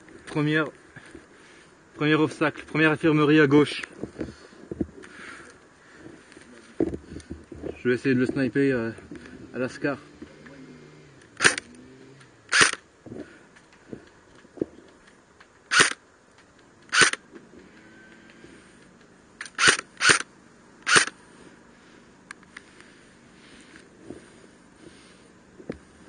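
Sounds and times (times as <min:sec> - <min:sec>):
airsoft rifle shots: 0:11.4 - 0:11.6, 0:12.5 - 0:12.8, 0:15.7 - 0:16.0, 0:16.9 - 0:17.2, 0:19.4 - 0:21.2.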